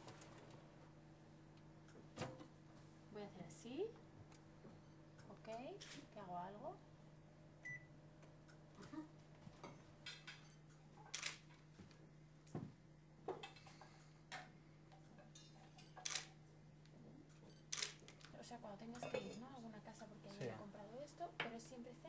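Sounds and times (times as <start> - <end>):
oven beep: 7.6 - 7.9
tableware and utensils clinking: 9.6 - 11.2, 19.0 - 19.5.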